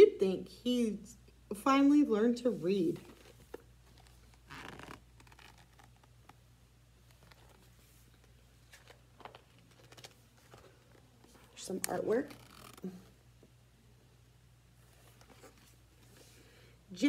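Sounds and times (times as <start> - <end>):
low steady hum: 0.0 - 17.0
paper pages rustling: 2.9 - 6.4, 7.0 - 12.8, 14.8 - 16.3.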